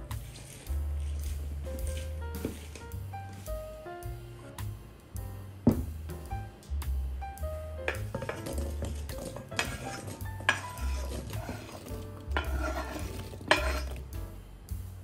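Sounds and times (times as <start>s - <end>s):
background music: 0.0s - 15.0s
utensil scraping a container: 0.1s - 2.9s, 7.9s - 14.0s.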